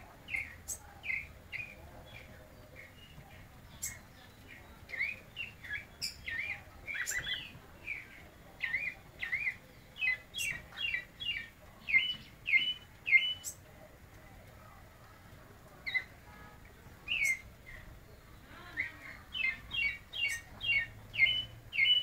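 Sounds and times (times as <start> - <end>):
bird chips: 0.3 - 13.7, 17.1 - 17.5, 18.8 - 22.0
thrush singing whistled notes: 3.8 - 13.6, 17.1 - 17.5, 19.4 - 22.0.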